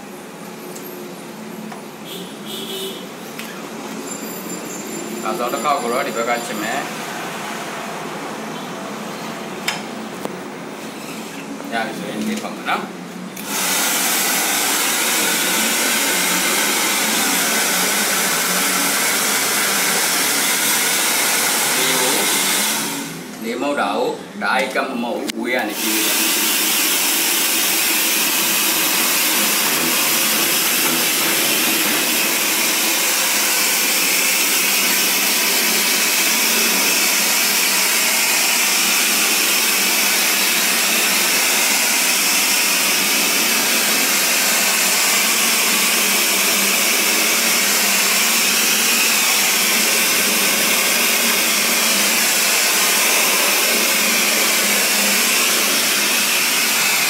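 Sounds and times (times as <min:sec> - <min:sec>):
hair dryer blowing: 0:05.2 - 0:08.2, 0:13.4 - 0:23.4, 0:25.6 - 0:57.0.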